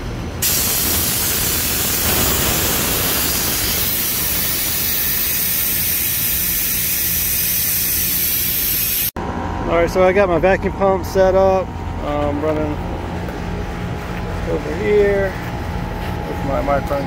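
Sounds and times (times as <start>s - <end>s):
gas hissing from valve: 0.4s - 9.1s.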